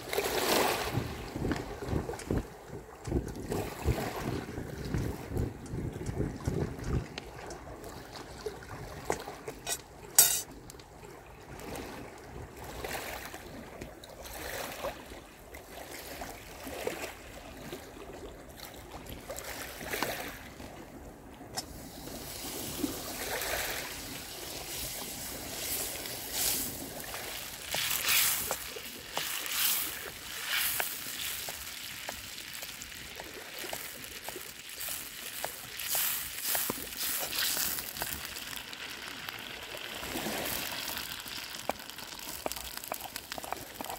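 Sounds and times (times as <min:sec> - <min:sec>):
waves washing over pebbles: 0:00.0 - 0:10.5, 0:18.9 - 0:43.9
wood fire crackling: 0:24.5 - 0:43.9.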